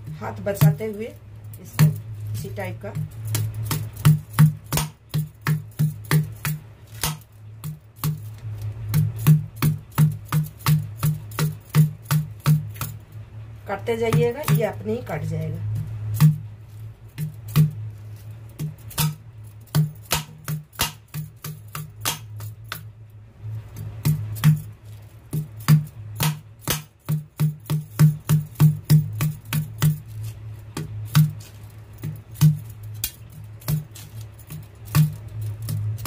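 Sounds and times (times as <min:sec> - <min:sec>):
knife chopping coconut husk: 0:02.8 - 0:08.2, 0:18.6 - 0:22.8.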